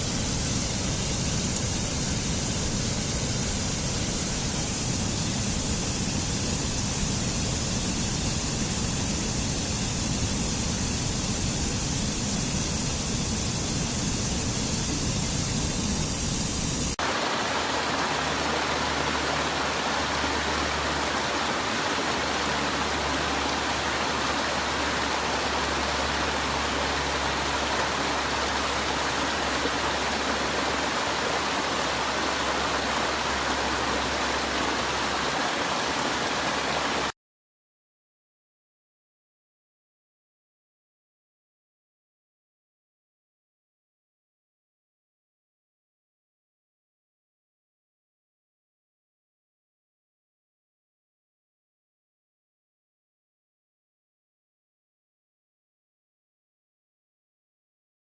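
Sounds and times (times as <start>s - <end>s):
stream rushing over rocks: 17.0s - 37.1s
small waterfalls over ledges: 17.0s - 37.2s.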